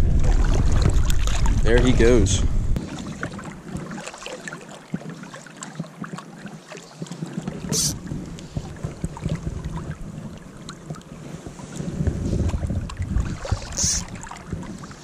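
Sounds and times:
wind rumble on microphone: 0.0s - 4.0s, 5.8s - 15.0s
river water flowing: 2.8s - 11.8s, 12.8s - 15.0s.

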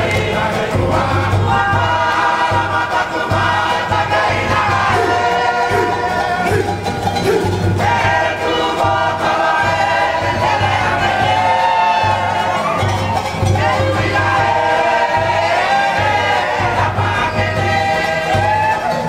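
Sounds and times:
group singing in chorus: 0.0s - 19.0s.

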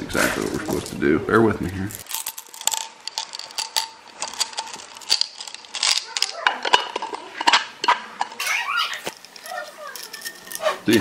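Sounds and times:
glass marbles clinking into a jar: 1.8s - 7.6s, 8.2s - 11.0s.

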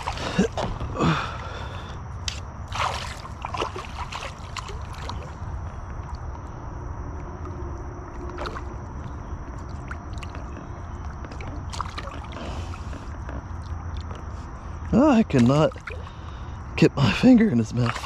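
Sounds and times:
fish splashing in water: 0.0s - 1.4s, 2.6s - 6.3s, 8.1s - 14.4s, 15.3s - 16.3s, 17.8s - 18.0s
steady low rumble: 0.0s - 18.0s.

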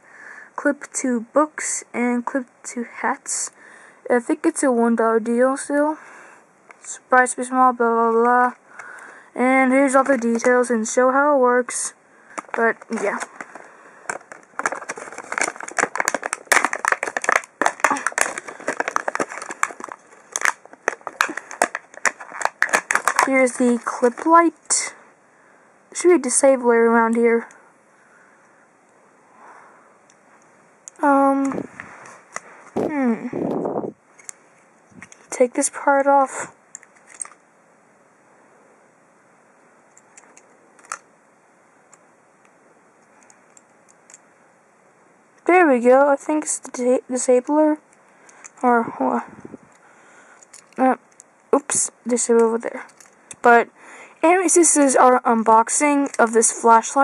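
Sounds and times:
low steady hiss: 0.0s - 57.0s
plastic packaging crinkling: 9.8s - 10.7s, 12.3s - 24.7s.

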